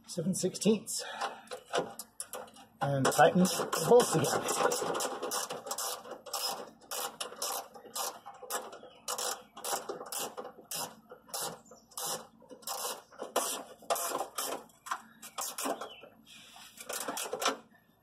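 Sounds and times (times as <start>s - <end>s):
ratchet wrench clicking: 4.5s - 8.2s.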